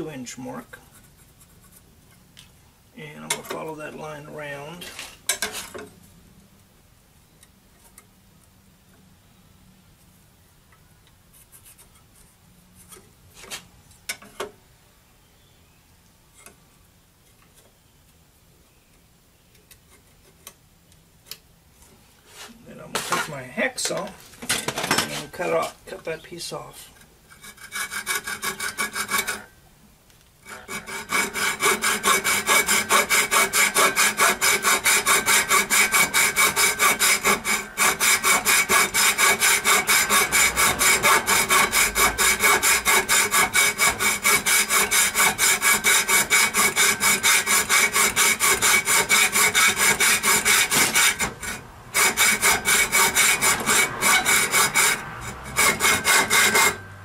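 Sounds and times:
hacksaw cutting metal: 27.3 - 29.5, 30.4 - 56.9.

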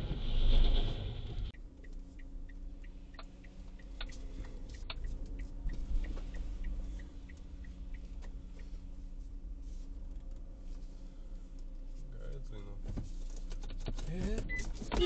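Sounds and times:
low engine hum: 0.0 - 15.0
road noise inside moving car: 0.0 - 15.0
turn signal ticking: 1.5 - 10.5.

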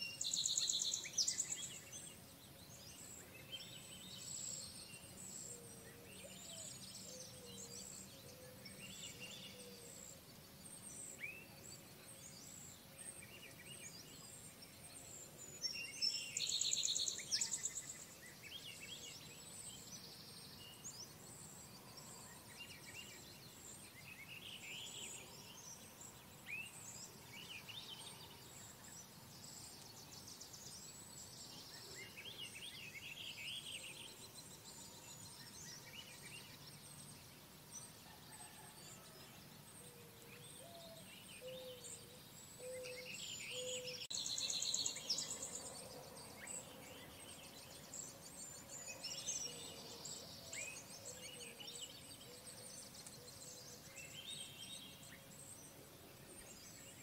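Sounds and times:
songbirds singing: 0.0 - 57.0.

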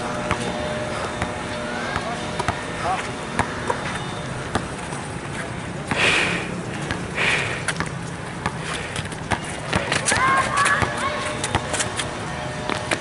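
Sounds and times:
city traffic hum: 0.0 - 13.0
basketball bouncing on concrete: 0.2 - 0.5, 1.1 - 2.6, 3.3 - 4.8, 7.7 - 12.1
loud breaths close to microphone: 5.9 - 7.8, 8.5 - 9.6.

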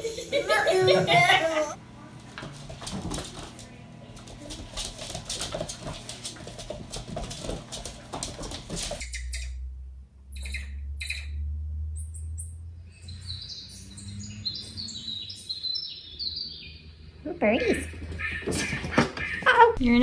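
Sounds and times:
birdsong through television speaker: 10.3 - 11.4, 12.0 - 19.8.

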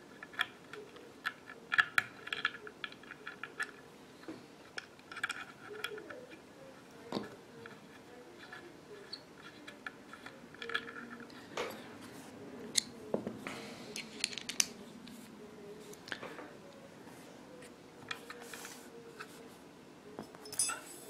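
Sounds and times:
small metal parts clicking: 4.8 - 6.1.

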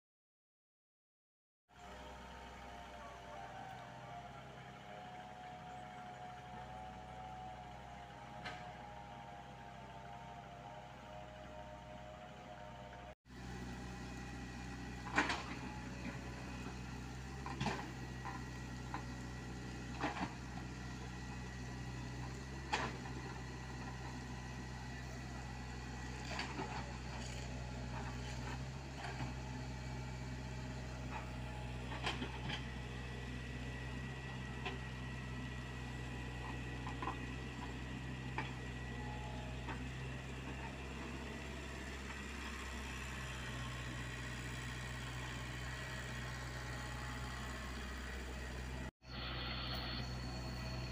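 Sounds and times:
excavator diesel engine running: 1.8 - 50.9.

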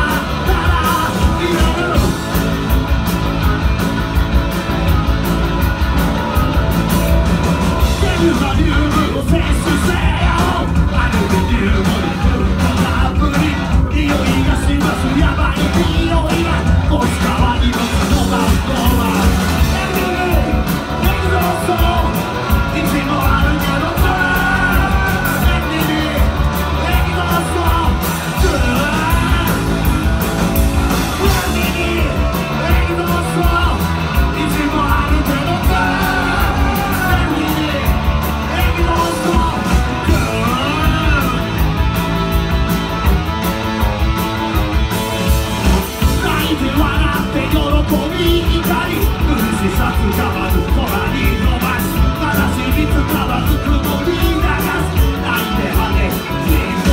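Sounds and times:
shouted lead vocal: 0.0 - 2.6, 6.0 - 42.2, 45.6 - 56.9
bass guitar: 0.0 - 56.9
drums: 0.0 - 56.9
electric guitars: 0.0 - 56.9.

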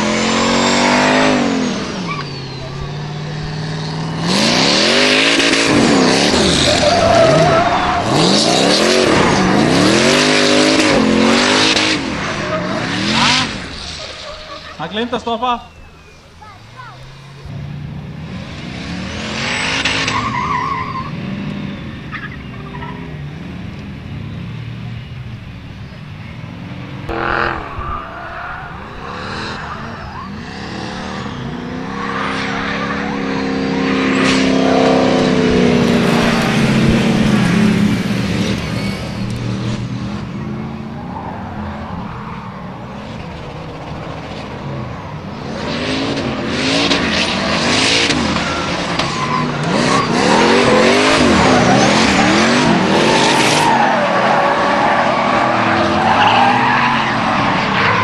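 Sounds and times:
racing engines revving: 0.0 - 58.0
tyre squeal: 0.6 - 11.0, 11.6 - 17.3, 19.5 - 23.2, 27.1 - 35.0, 38.4 - 39.8, 47.8 - 58.0.

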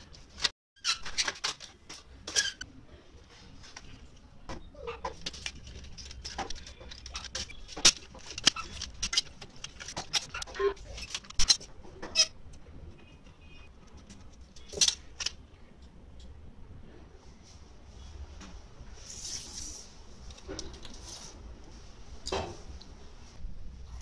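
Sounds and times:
plastic parts clicking and snapping: 5.1 - 12.3, 13.9 - 16.3.

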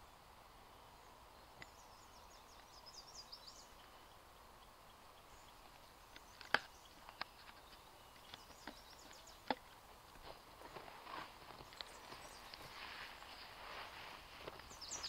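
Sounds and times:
bird twittering: 14.6 - 15.0.

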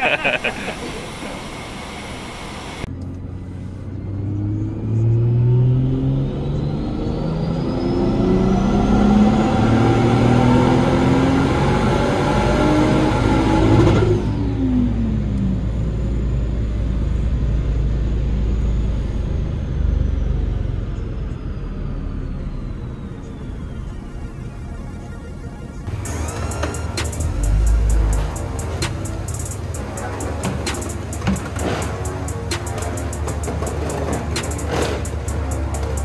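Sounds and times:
high whine: 0.0 - 2.9, 20.6 - 36.0
car engine revving: 4.0 - 15.1, 22.4 - 36.0
dyno rollers low rumble: 13.6 - 36.0.

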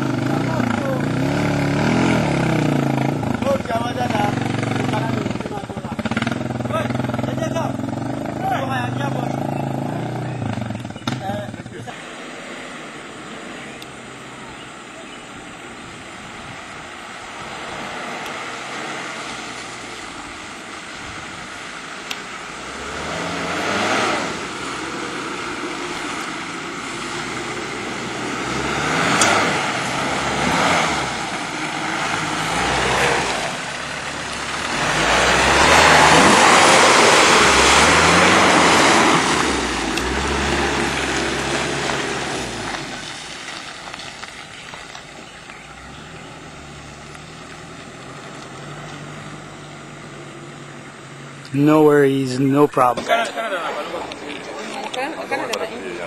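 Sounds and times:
vehicle engine revving: 0.0 - 56.0.

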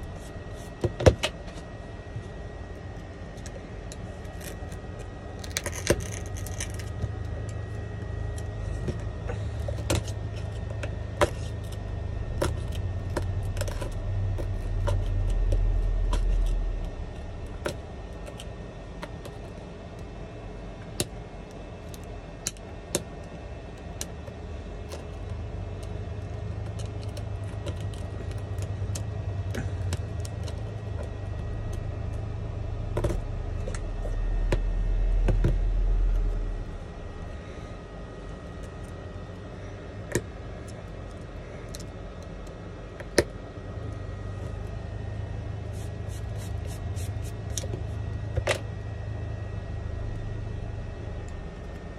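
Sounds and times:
low rumble: 5.2 - 19.6, 25.3 - 38.9, 43.8 - 51.9.

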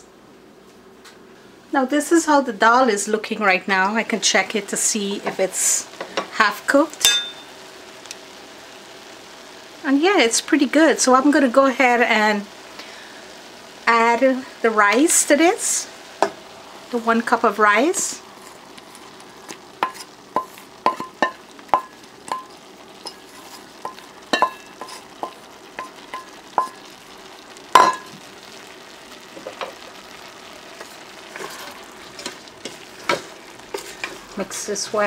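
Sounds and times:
spoon knocking on metal pot: 7.0 - 7.4, 19.8 - 22.5, 23.8 - 26.8, 27.8 - 28.1
wet rice rustling: 15.9 - 34.9.

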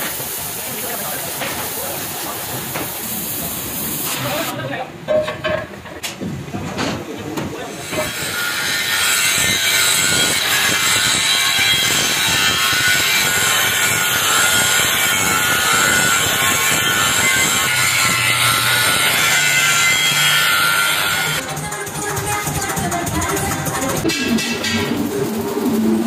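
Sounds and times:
angle grinder grinding steel: 7.7 - 21.5.

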